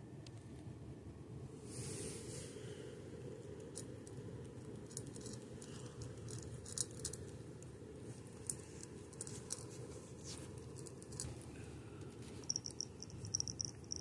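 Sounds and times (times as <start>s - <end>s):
low background hum: 0.0s - 14.0s
cat crunching dry kibble: 3.5s - 11.5s.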